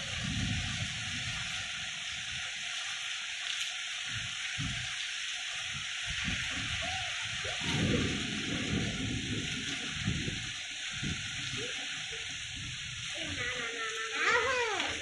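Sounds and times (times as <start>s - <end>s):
wind surges: 0.0s - 2.6s, 5.7s - 15.0s
heavy rain pouring: 0.0s - 15.0s.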